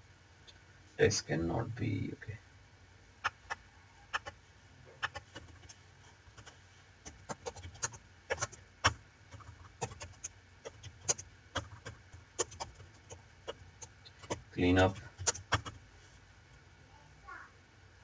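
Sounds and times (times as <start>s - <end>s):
keyboard keys clicking: 7.1s - 15.8s.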